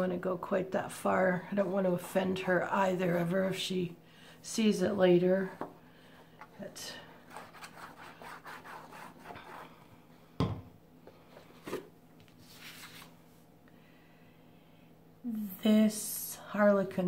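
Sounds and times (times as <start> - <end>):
low steady hum: 0.0 - 17.0
paper brushing: 7.2 - 9.7, 11.6 - 13.2
paper rustling: 11.4 - 13.2.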